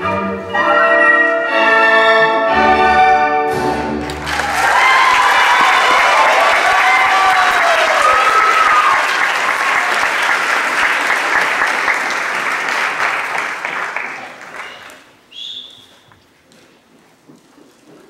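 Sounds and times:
audience applauding: 0:04.0 - 0:15.1.

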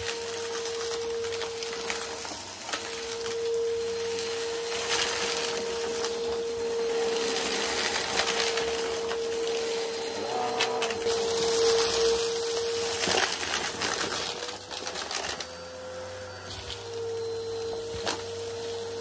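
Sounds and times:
debris crackling through nozzle: 0:00.0 - 0:15.7
vacuum cleaner whining: 0:00.0 - 0:19.0.

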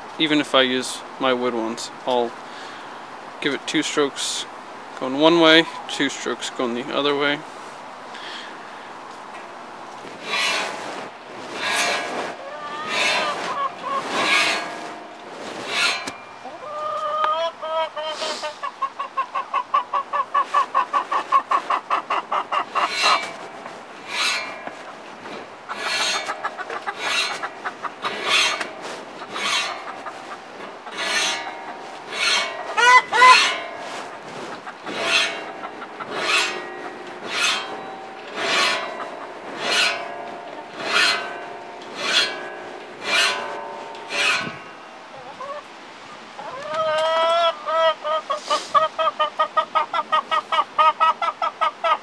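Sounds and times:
chicken clucking: 0:11.6 - 0:15.0, 0:15.6 - 0:23.5, 0:25.7 - 0:52.0
file rasping on saw teeth: 0:31.0 - 0:31.5, 0:32.1 - 0:33.6, 0:34.9 - 0:37.8, 0:40.8 - 0:41.3.

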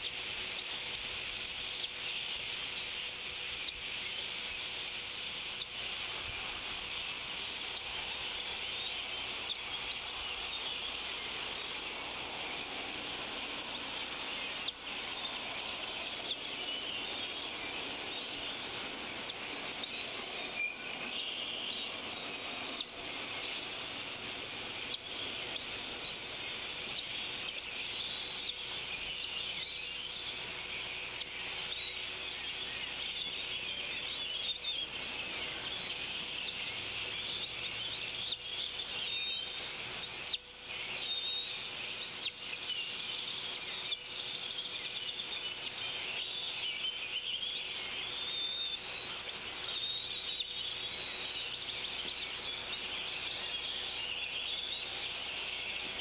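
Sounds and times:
songbirds singing: 0:00.0 - 0:56.0
steady high hiss: 0:00.0 - 0:56.0.

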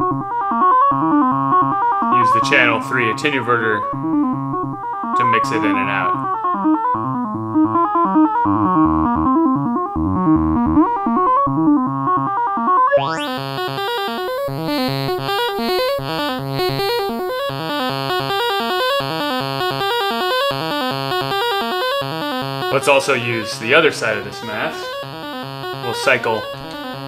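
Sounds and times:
synthesizer sequence of short notes: 0:02.0 - 0:04.4, 0:21.2 - 0:27.0.

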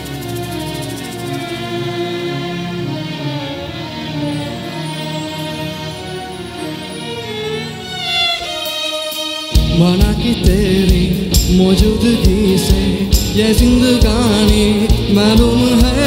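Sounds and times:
violin melody with sliding notes: 0:00.0 - 0:16.0
drum kit beat: 0:08.4 - 0:16.0
bass guitar: 0:09.6 - 0:16.0.

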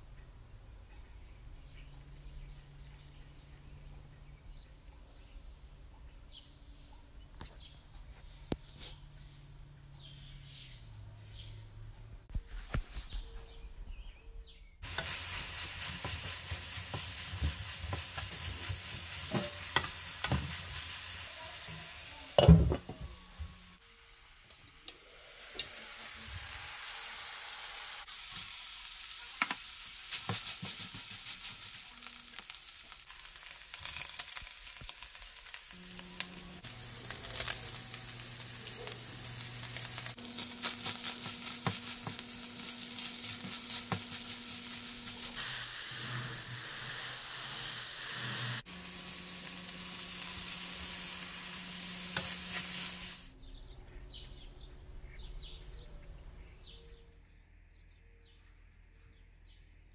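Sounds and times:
wooden spoon scraping a pan: 0:14.8 - 0:21.0, 0:40.1 - 0:45.4, 0:52.1 - 0:53.1
meat sizzling in a pan: 0:14.8 - 0:22.7, 0:23.7 - 0:53.3.

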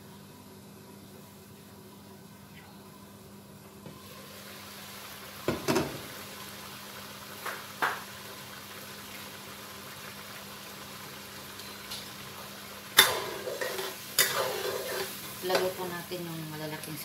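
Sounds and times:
sauce bubbling in a frying pan: 0:03.9 - 0:17.0
spatula stirring sauce: 0:13.5 - 0:15.2.

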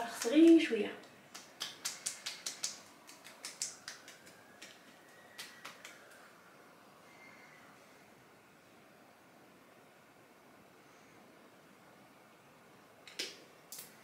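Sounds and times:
fingertips patting face: 0:00.1 - 0:06.1.

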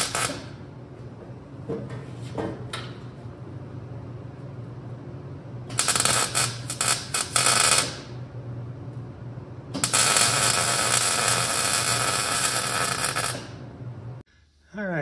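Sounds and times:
arc welding crackling sizzle: 0:00.0 - 0:00.5, 0:05.6 - 0:08.2, 0:09.7 - 0:13.7.

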